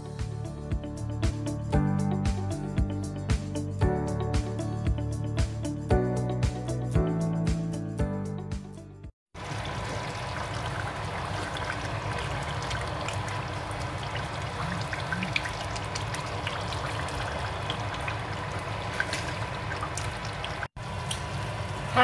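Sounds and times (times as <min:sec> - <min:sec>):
stew bubbling at a simmer: 0:09.4 - 0:21.3.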